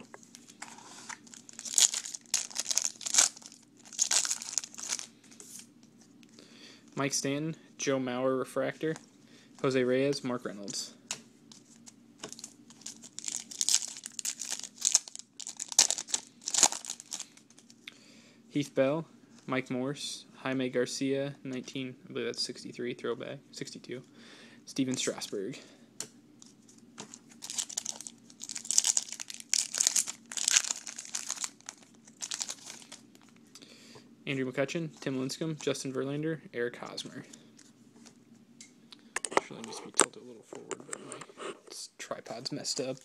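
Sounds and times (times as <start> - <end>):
foil wrapper crinkling: 0.3 - 5.1, 12.3 - 17.8, 27.2 - 33.4.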